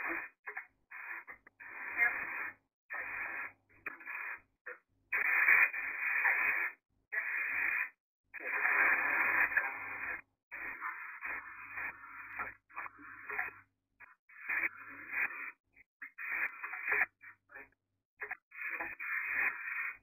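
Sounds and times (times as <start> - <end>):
broken broadcast sound: 0.0 - 4.4, 5.1 - 20.0
radio hiss bursts: 0.0 - 4.4, 5.1 - 13.5, 18.2 - 20.0.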